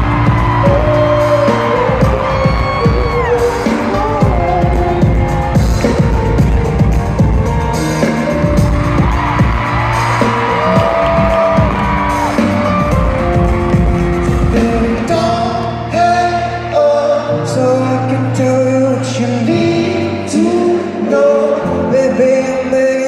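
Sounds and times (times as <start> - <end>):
man singing: 0.0 - 6.6, 14.2 - 23.0
live pop band: 0.0 - 23.0.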